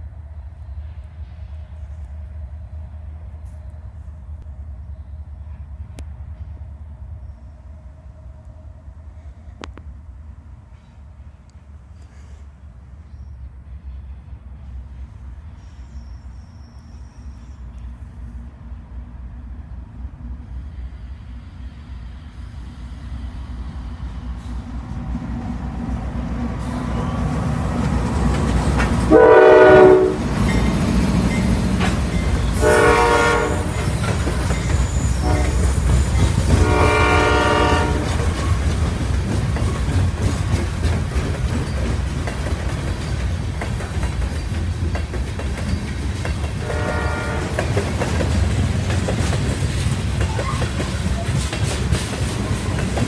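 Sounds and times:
diesel locomotive engine rumble: 0.0s - 53.0s
freight cars rolling by: 9.8s - 53.0s
train horn blasts: 29.1s - 30.3s, 32.5s - 34.0s, 35.1s - 35.9s, 36.5s - 38.3s, 46.6s - 47.7s.

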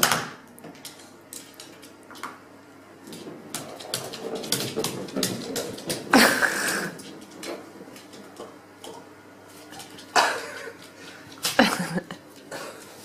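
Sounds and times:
dog claws clicking on wooden floor: 0.0s - 2.4s, 3.0s - 9.1s
ball knocking: 3.4s - 6.2s.

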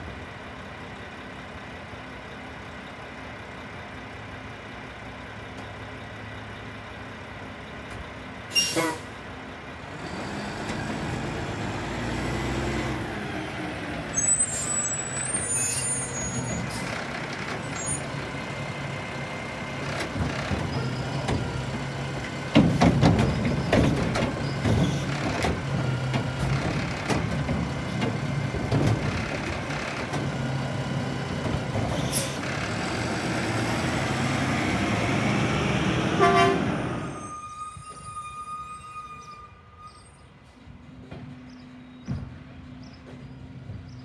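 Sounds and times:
garbage truck engine humming: 0.0s - 38.2s
truck horn toot: 8.6s - 9.2s, 36.0s - 40.3s
metal bangs and clatter: 22.5s - 30.3s.

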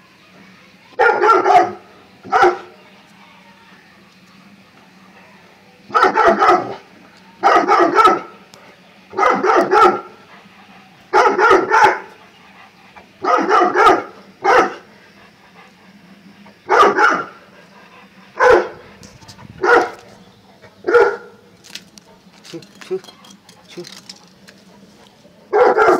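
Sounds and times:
dog barking: 1.0s - 2.7s, 5.9s - 6.8s, 7.4s - 8.4s, 9.1s - 10.2s, 11.1s - 12.2s, 13.2s - 14.9s, 16.7s - 17.4s, 18.4s - 18.8s, 19.6s - 20.0s, 20.8s - 21.4s, 25.5s - 25.9s.

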